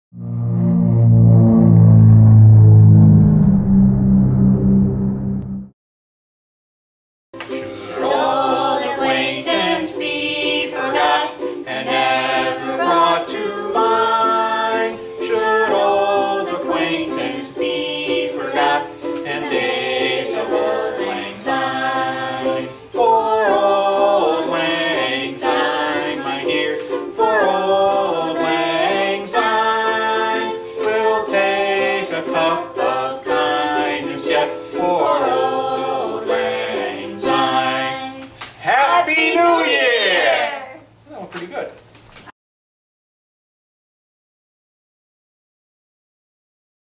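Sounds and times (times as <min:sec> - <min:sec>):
strummed ukulele: 0:07.4 - 0:38.2
people singing together: 0:07.6 - 0:40.7.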